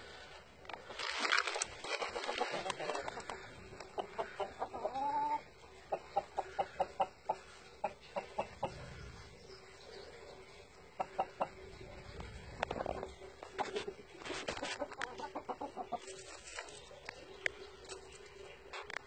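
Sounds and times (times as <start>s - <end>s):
fowl clucking: 2.0s - 9.0s, 10.9s - 16.7s.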